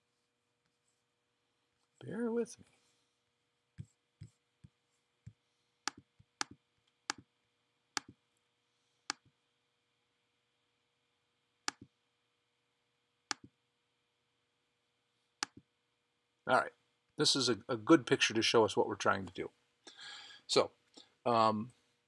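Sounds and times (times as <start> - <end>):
computer mouse clicking: 5.9 - 7.3, 11.7 - 11.9, 13.3 - 13.5.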